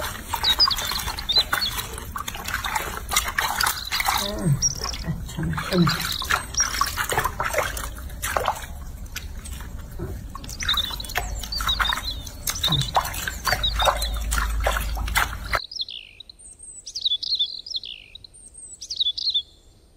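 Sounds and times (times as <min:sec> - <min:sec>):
water splashing in a sink: 0:00.0 - 0:15.6.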